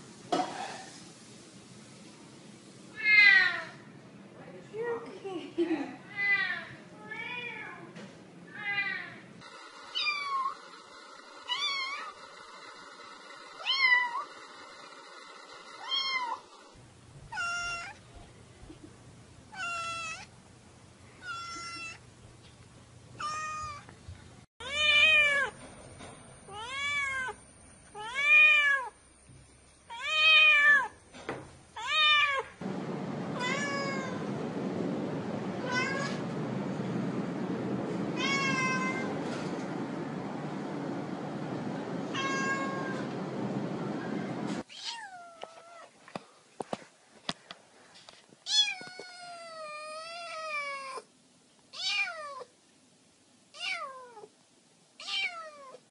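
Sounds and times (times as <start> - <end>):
background hiss: 0.0 - 3.4
cat meowing: 15.8 - 16.4, 17.3 - 18.0, 21.2 - 22.0, 33.4 - 34.2, 35.6 - 36.2, 38.2 - 39.1, 42.1 - 43.0, 48.5 - 51.1, 51.7 - 52.5, 53.6 - 54.3, 55.0 - 55.8.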